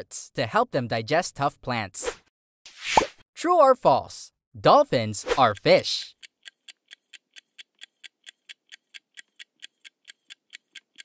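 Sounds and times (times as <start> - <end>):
clock ticks: 4.8 - 11.0.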